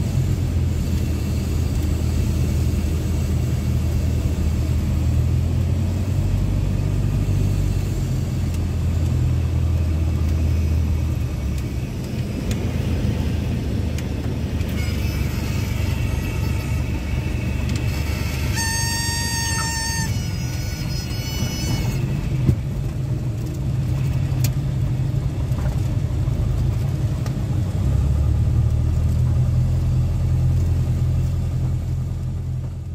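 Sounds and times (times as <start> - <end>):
airplane engine and propeller drone: 0.0 - 32.9
stall warning horn: 14.6 - 22.6.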